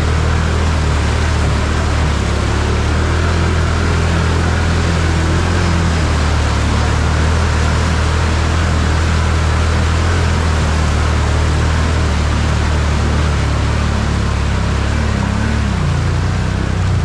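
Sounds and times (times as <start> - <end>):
quad engine running: 0.0 - 17.0
water splashing around wheels: 0.0 - 17.0.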